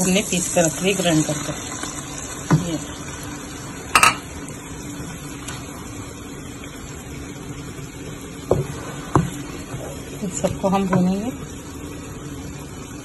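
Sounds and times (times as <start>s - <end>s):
onion sizzling in oil: 0.0s - 13.0s
wooden spoon stirring: 8.5s - 11.2s.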